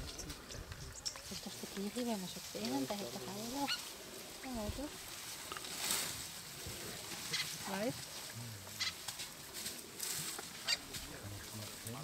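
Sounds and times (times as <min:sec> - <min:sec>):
leaves rustling: 0:00.0 - 0:12.0
elephant calls: 0:08.7 - 0:09.1, 0:09.8 - 0:11.0.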